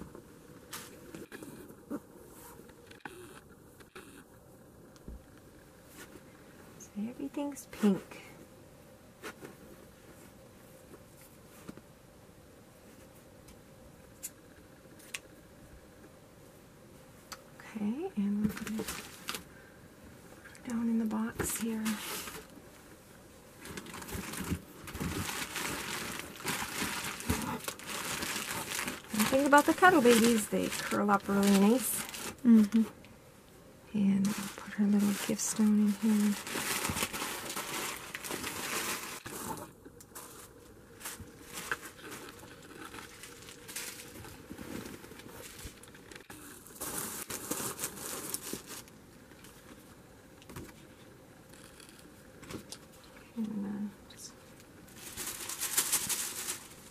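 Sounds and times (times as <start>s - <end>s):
plastic packing crinkling: 18.5s - 19.5s, 23.5s - 33.0s, 34.2s - 49.8s, 54.9s - 56.9s.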